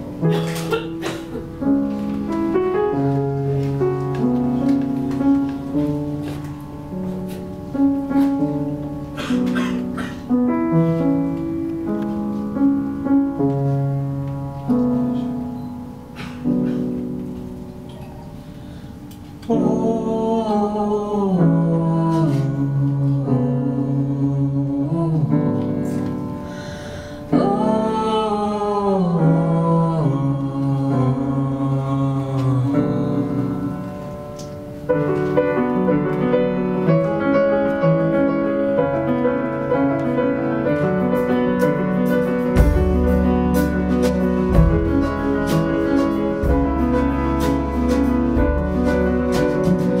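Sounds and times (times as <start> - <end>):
piano accompaniment: 0.0 - 50.0
man singing: 19.5 - 25.4, 27.4 - 33.9
drums: 40.7 - 50.0
deep bass line: 42.6 - 50.0.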